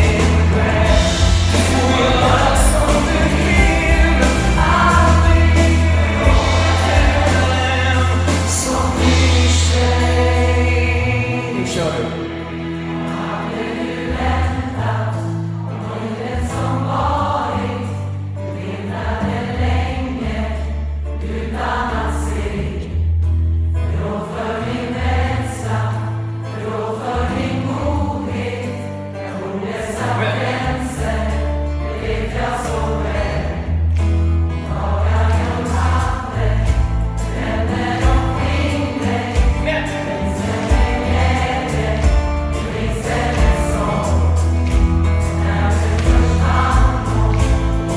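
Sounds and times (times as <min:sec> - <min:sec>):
steady bass line: 0:00.0 - 0:15.5, 0:30.0 - 0:47.9
band accompaniment: 0:00.0 - 0:22.8, 0:24.0 - 0:47.9
large choir singing pop song: 0:00.0 - 0:23.1, 0:23.8 - 0:47.9.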